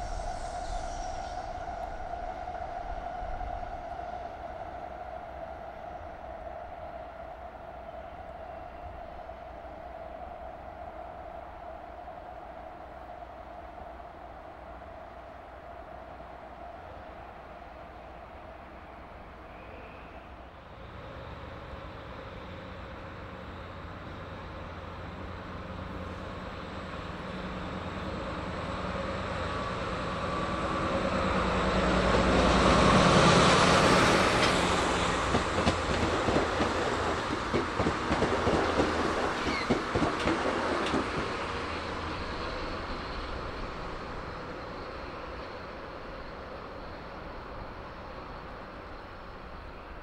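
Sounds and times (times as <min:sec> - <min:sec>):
diesel locomotive engine: 0:00.0 - 0:50.0
train wheels clicking over rail joints: 0:33.4 - 0:44.7.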